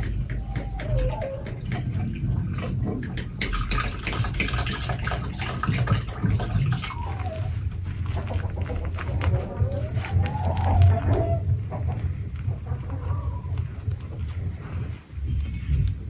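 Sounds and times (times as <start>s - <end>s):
water trickling into bowl: 0.6s - 11.0s.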